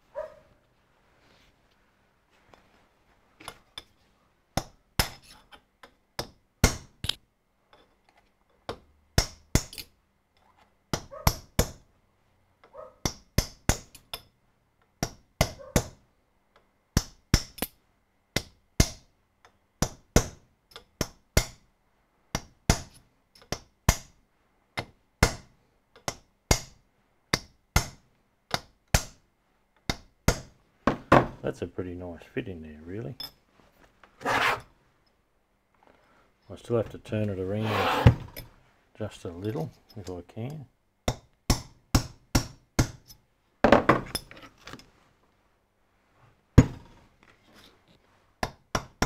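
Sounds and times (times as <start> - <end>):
hammer tapping steel punch: 41.1 - 43.2.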